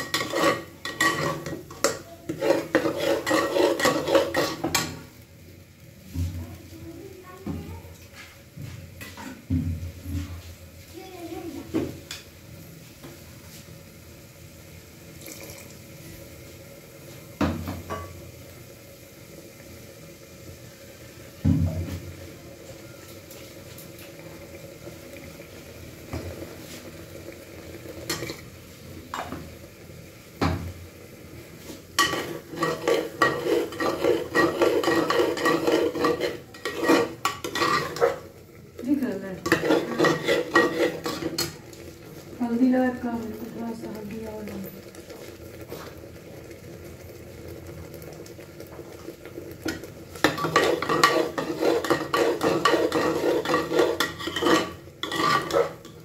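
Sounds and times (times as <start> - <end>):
ladle stirring in metal pot: 0.0 - 5.0, 31.6 - 42.6, 49.0 - 56.0.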